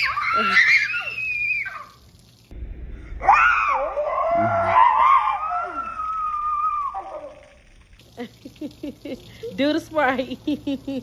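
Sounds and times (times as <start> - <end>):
girl screaming: 0.0 - 2.0, 3.2 - 7.5.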